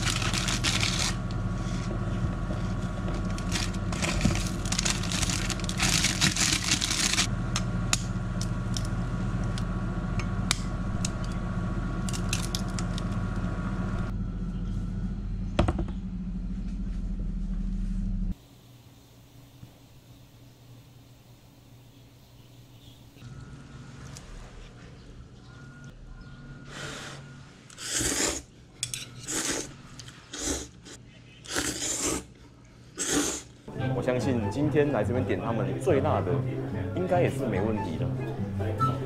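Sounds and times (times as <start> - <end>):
plastic packet rustling: 0.0 - 1.3, 2.8 - 7.3
high whine: 0.0 - 18.3
electrical hum: 0.0 - 39.0
egg cracking: 3.0 - 9.7, 12.0 - 13.4
utensils clinking against pot: 28.8 - 29.4.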